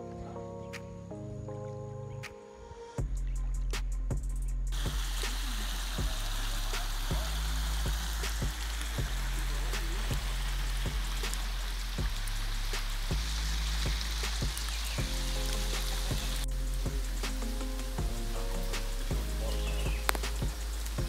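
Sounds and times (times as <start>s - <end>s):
low rumble: 3.0s - 21.0s
flooded river rushing: 4.8s - 21.0s.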